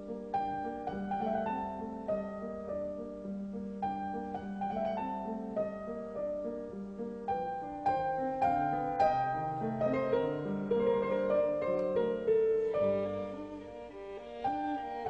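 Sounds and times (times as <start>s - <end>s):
piano notes: 0.0s - 15.0s
sustained bowed strings: 9.5s - 15.0s.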